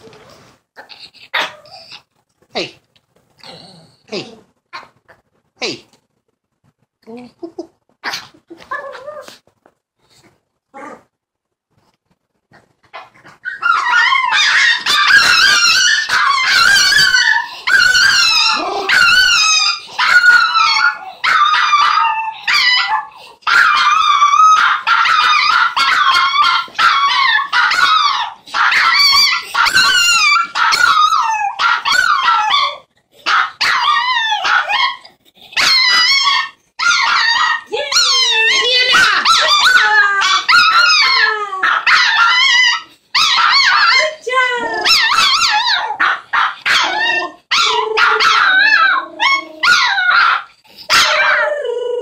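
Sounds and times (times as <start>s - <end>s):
dogs howling: 13.5s - 52.0s.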